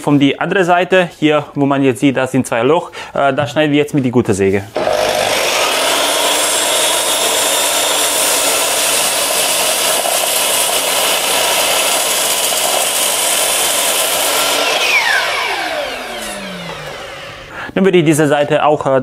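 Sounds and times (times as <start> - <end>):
mitre saw cutting wood: 4.7 - 17.6
saw blade spinning down: 4.7 - 17.6.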